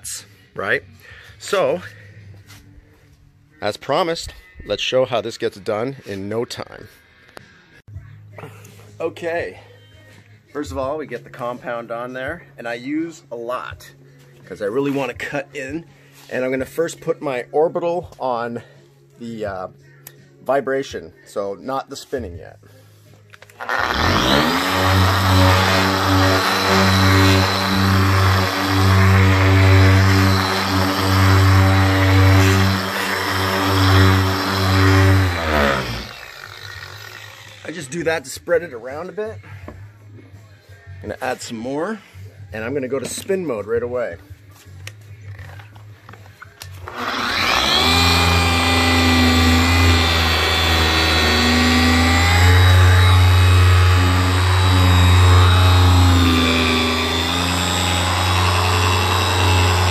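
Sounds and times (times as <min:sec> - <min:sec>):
polisher droning hum: 0:23.6 - 0:37.6, 0:46.9 - 0:59.9.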